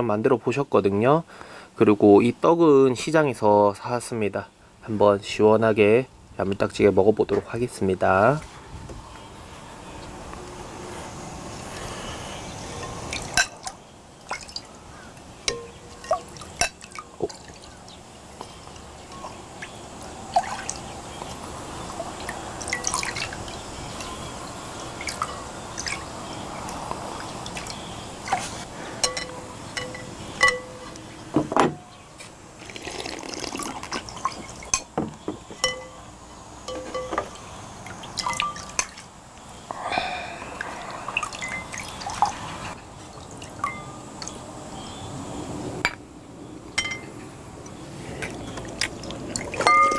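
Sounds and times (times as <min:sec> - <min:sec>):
liquid pouring and dripping: 0:12.8 - 0:14.7, 0:15.5 - 0:24.2, 0:24.8 - 0:26.1, 0:32.6 - 0:34.7, 0:37.8 - 0:39.1, 0:40.6 - 0:44.4
metal ladle clinking on glass: 0:15.5 - 0:16.9, 0:29.0 - 0:31.0, 0:35.6 - 0:36.1, 0:36.7 - 0:37.4, 0:49.6 - 0:49.9.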